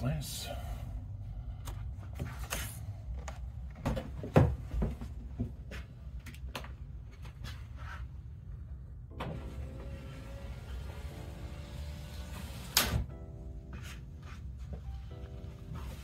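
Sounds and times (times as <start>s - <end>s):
faint music: 9.1s - 16.0s.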